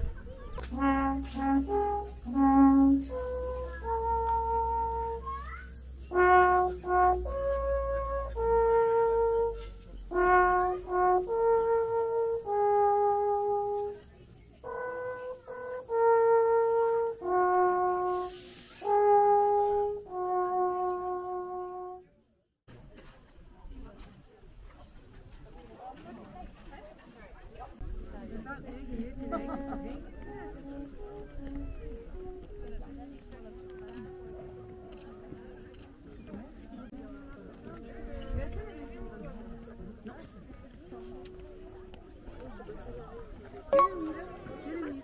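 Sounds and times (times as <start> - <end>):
horn playing slow melody: 0.7 - 22.2, 29.2 - 35.9, 36.8 - 42.8, 43.7 - 45.0.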